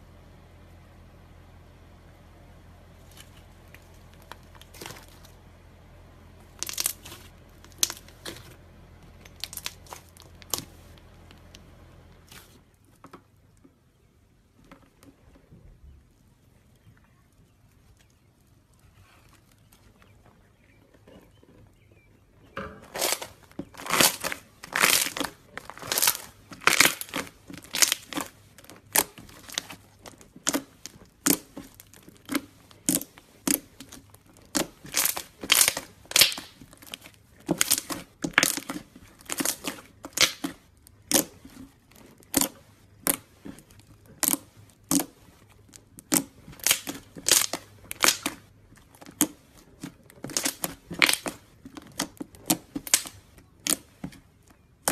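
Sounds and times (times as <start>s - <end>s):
slime crackling and popping: 3.1s - 5.4s, 6.4s - 12.8s, 22.6s - 54.9s.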